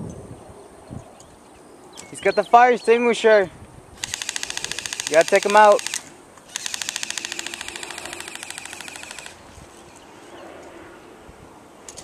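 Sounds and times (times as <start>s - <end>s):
airsoft gun full-auto burst: 4.0s - 9.4s.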